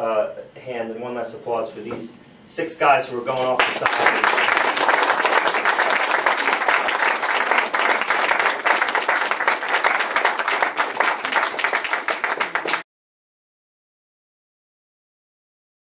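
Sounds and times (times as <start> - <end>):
crowd applauding: 3.6 - 12.8.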